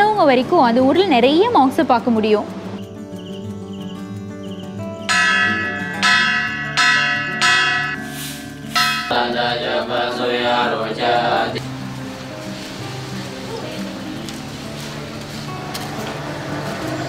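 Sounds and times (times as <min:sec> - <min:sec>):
soft background music: 0:00.0 - 0:17.0
bell strokes ringing: 0:05.1 - 0:10.0.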